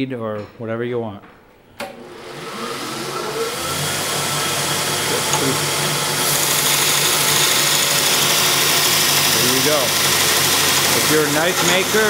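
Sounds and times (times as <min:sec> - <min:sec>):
belt grinder motor hum: 0:02.0 - 0:12.0
steel grinding hiss: 0:06.2 - 0:12.0.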